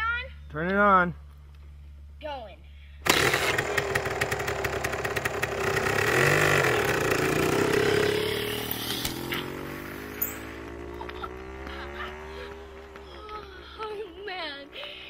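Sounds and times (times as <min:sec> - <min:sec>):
electric dirt bike motor whining: 0:03.0 - 0:13.4.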